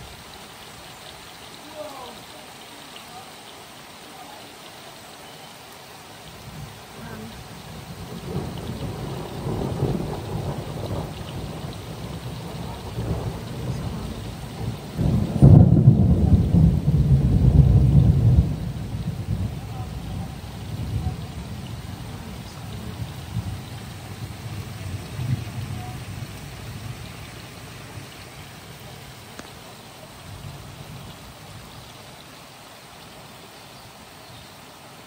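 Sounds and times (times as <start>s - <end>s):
rain hissing: 0.0s - 35.0s
deep thunder rumble: 6.5s - 29.4s
loud thunder clap: 8.0s - 27.0s.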